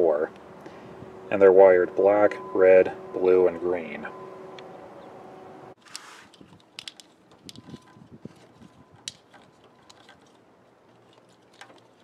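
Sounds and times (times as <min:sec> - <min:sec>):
faint steady hum: 0:00.0 - 0:05.8
plastic wire loom crinkling: 0:05.8 - 0:12.0.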